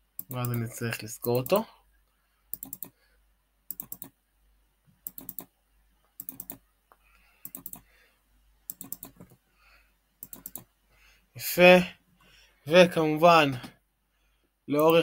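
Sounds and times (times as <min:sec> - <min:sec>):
computer keyboard and mouse clicking: 0:00.2 - 0:01.6, 0:02.5 - 0:03.0, 0:03.7 - 0:04.2, 0:05.0 - 0:05.5, 0:06.2 - 0:07.9, 0:08.7 - 0:09.4, 0:10.2 - 0:10.7, 0:14.8 - 0:15.0.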